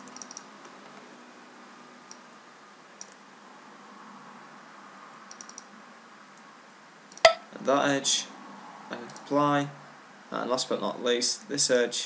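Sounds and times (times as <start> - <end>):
computer mouse clicks: 0.0 - 0.4, 5.3 - 5.7
faint microphone hiss: 0.0 - 12.0.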